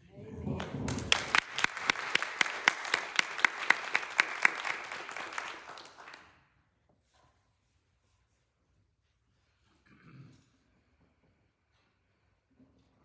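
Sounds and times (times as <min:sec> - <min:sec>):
crowd applauding: 0:00.4 - 0:06.4
close sharp hand clapping: 0:00.6 - 0:06.4.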